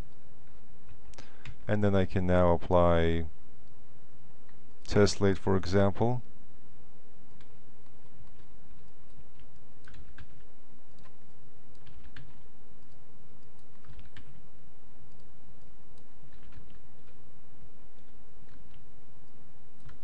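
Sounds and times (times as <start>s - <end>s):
background hiss: 0.0s - 20.0s
keyboard and mouse clicking: 7.3s - 14.4s, 15.1s - 17.2s, 17.9s - 20.0s.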